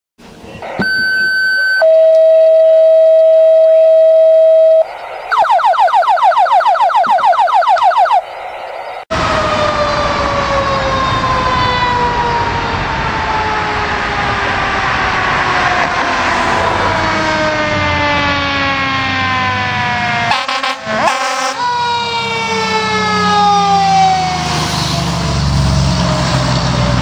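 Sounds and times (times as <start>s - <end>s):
traffic noise: 0.2s - 1.9s, 2.6s - 27.0s
two-tone electronic alert: 0.6s - 9.0s
rising electronic warble: 0.6s - 20.2s
mechanical siren winding down: 0.7s - 27.0s.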